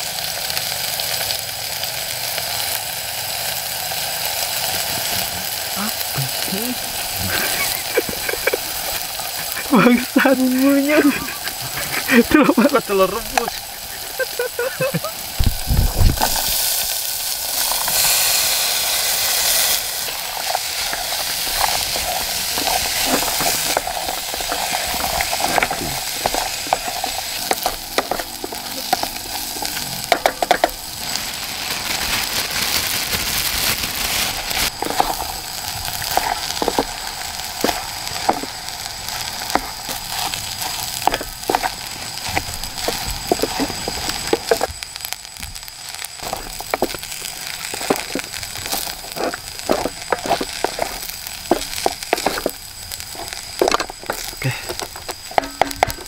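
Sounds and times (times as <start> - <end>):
food sizzling in hot oil: 0.0 - 56.0
wooden spatula scraping pot: 19.4 - 30.8, 34.8 - 35.3, 36.0 - 37.0, 37.6 - 38.6, 39.3 - 44.7, 46.2 - 56.0.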